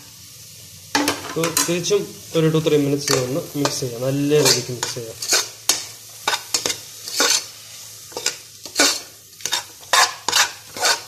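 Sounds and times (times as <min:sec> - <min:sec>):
faint sizzle: 0:00.0 - 0:11.0
spoon scraping metal pot: 0:04.4 - 0:07.5, 0:08.1 - 0:11.0.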